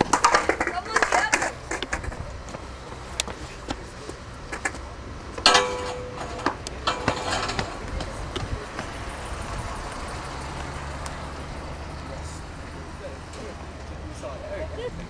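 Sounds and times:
skateboard clattering on brick steps: 0:00.0 - 0:02.7
low vehicle engine hum: 0:00.0 - 0:15.0.

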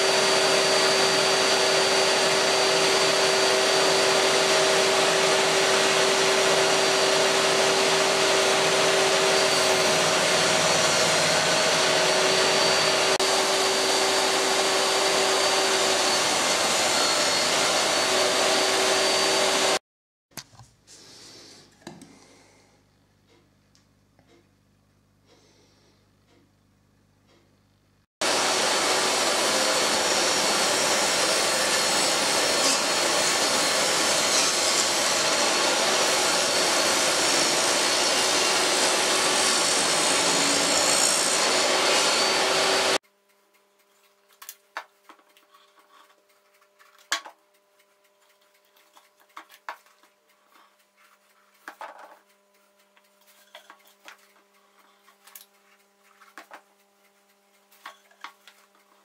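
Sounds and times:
table saw cutting wood: 0:00.0 - 0:19.8, 0:28.2 - 0:43.0.

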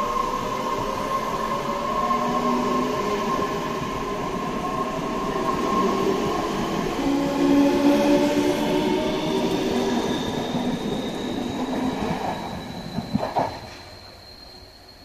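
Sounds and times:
wheels rumbling on rails: 0:10.5 - 0:14.1.

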